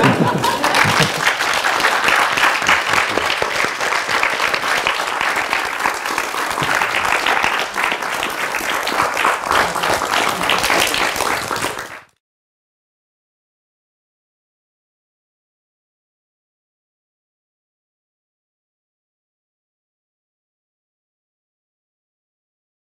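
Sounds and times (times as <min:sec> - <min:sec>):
audience applauding: 0:00.0 - 0:12.2.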